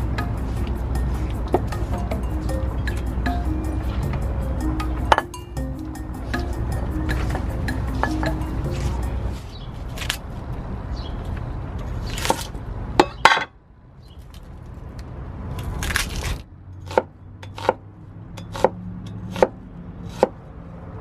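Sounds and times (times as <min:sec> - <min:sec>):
low steady rumble: 0:00.0 - 0:10.9.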